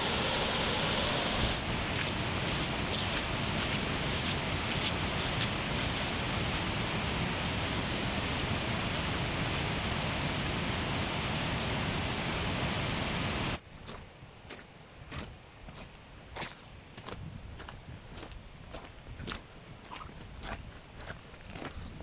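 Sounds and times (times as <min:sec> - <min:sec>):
fast-flowing water rushing: 0:00.0 - 0:13.6.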